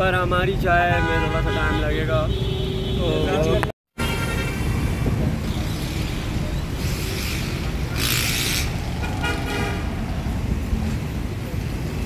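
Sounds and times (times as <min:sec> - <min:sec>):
dense road traffic: 0:00.0 - 0:12.0
wind buffeting microphone: 0:04.8 - 0:05.6.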